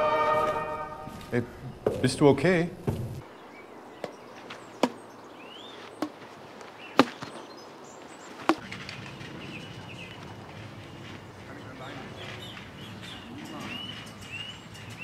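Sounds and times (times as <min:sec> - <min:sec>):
birds chirping: 0:01.0 - 0:15.0
racket hitting ball: 0:04.8 - 0:05.0, 0:07.0 - 0:07.3.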